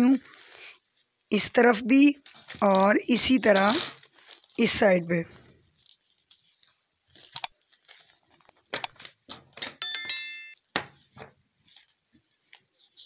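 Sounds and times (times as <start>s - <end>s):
paper rustling: 2.2s - 3.2s, 4.0s - 9.3s
bell-like notification chime: 9.8s - 10.6s.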